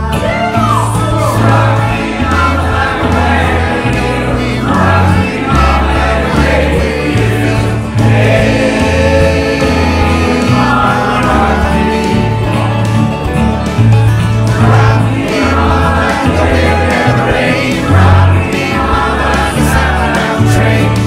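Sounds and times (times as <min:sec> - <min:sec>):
person singing: 0:00.0 - 0:13.2
karaoke backing track: 0:00.0 - 0:21.0.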